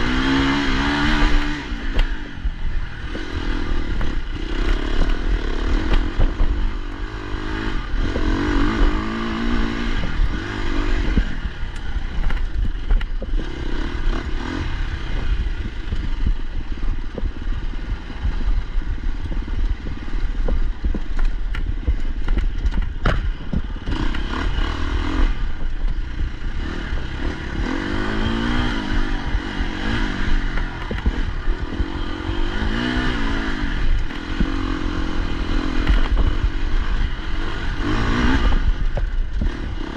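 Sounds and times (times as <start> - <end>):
dirt bike engine revving: 0.0 - 39.9
bike clattering over stones: 20.4 - 23.8.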